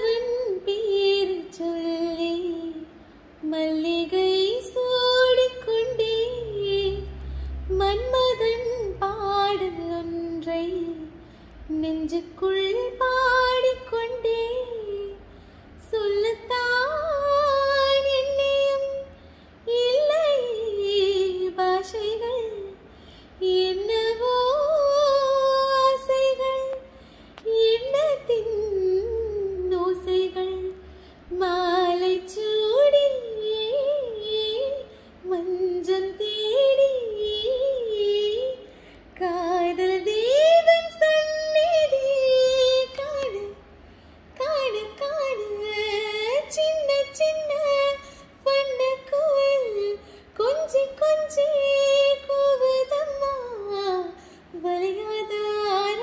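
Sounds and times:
woman singing unaccompanied: 0:00.0 - 0:22.8, 0:23.4 - 0:43.6, 0:44.4 - 0:56.0
breaths: 0:07.1 - 0:07.7, 0:11.2 - 0:11.6, 0:15.2 - 0:15.8, 0:19.1 - 0:19.6, 0:22.8 - 0:23.4, 0:26.8 - 0:27.5, 0:30.8 - 0:31.3, 0:38.6 - 0:39.2, 0:43.7 - 0:44.4, 0:48.0 - 0:48.4, 0:50.0 - 0:50.4, 0:54.1 - 0:54.6.

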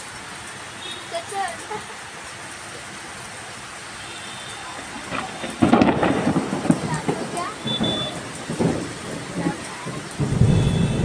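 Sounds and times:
heavy rain: 0:00.0 - 0:11.0
rumble of thunder: 0:04.8 - 0:11.0.

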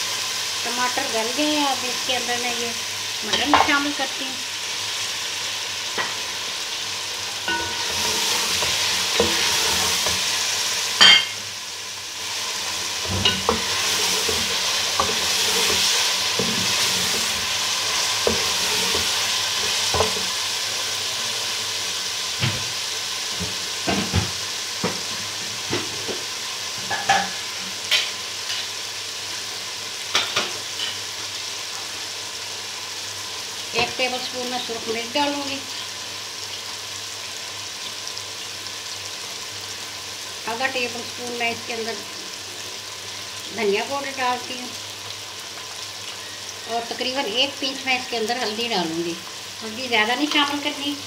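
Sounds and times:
meat sizzling in hot oil: 0:00.0 - 0:51.0
spatula scraping metal pot: 0:07.5 - 0:10.2.

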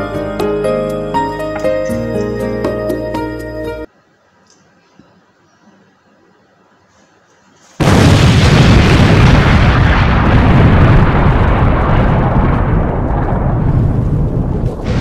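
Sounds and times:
explosion sound effect: 0:07.8 - 0:15.0.

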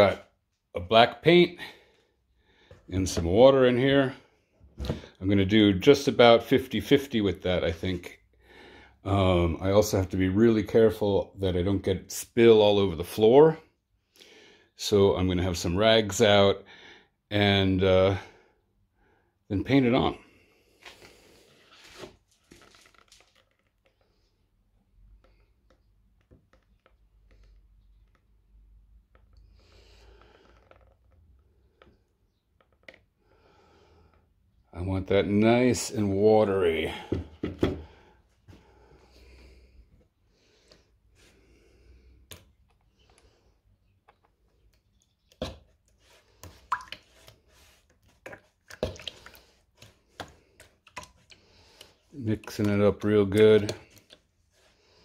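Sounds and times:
liquid slopping: 0:40.4 - 0:55.0.

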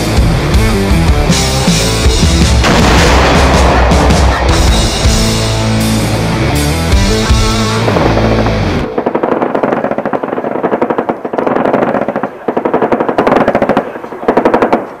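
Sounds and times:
rapid automatic gunfire: 0:02.6 - 0:05.2, 0:07.9 - 0:15.0.

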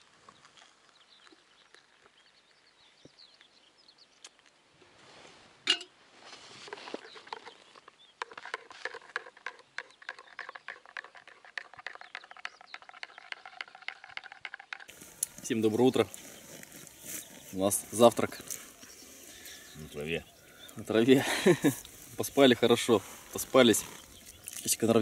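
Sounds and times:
faint bird chirps: 0:15.0 - 0:22.1.

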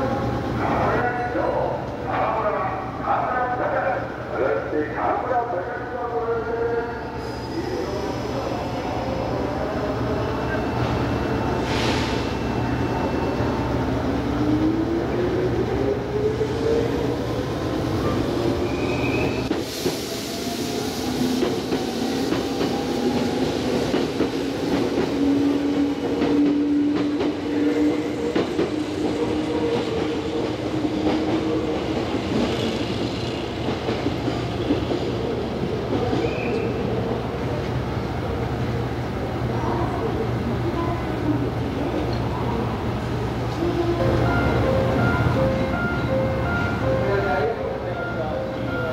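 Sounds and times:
train wheels clattering on rails: 0:21.0 - 0:35.2.

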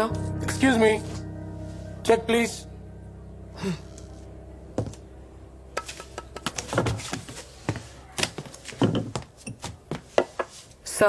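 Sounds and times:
heavy thumps: 0:04.7 - 0:05.2, 0:05.8 - 0:10.5.

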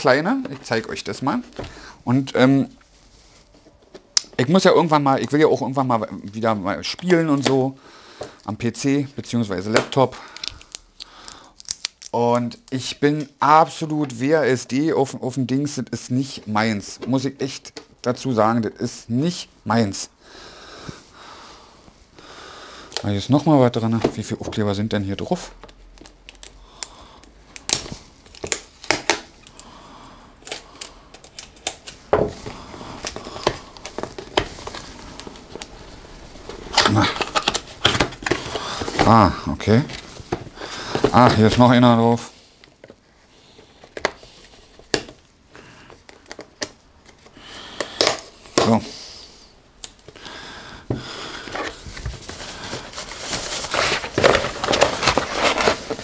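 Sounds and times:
cardboard box packaging rustling: 0:31.2 - 0:35.7, 0:36.3 - 0:41.9, 0:51.3 - 0:56.0.

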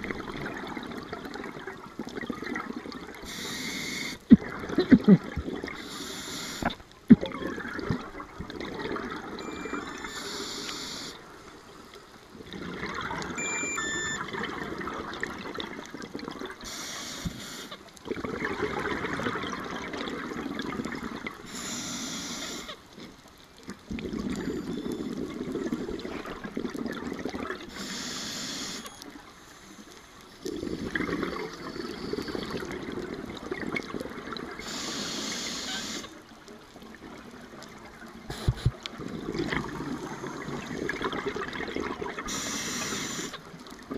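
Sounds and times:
regulator inhale hiss: 0:03.2 - 0:04.2, 0:05.8 - 0:06.8, 0:10.1 - 0:11.2, 0:16.6 - 0:17.8, 0:21.5 - 0:22.8, 0:27.7 - 0:28.9, 0:34.6 - 0:36.1, 0:38.3 - 0:38.8, 0:42.3 - 0:43.4
exhaled bubbles rushing: 0:07.1 - 0:09.8, 0:12.3 - 0:13.5, 0:18.0 - 0:21.4, 0:30.4 - 0:34.6, 0:38.3 - 0:42.3.

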